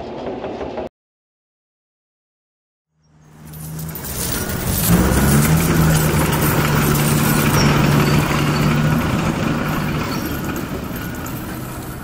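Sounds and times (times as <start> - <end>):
diesel engine idling: 3.4 - 12.0.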